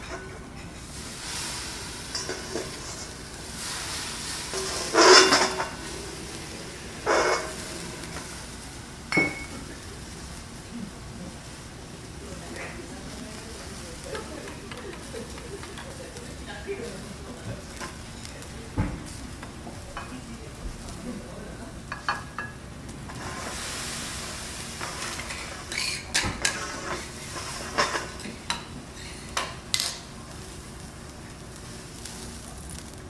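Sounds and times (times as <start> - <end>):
food sizzling on a griddle: 0.0 - 33.0
metal utensil clicks and taps: 14.4 - 15.9.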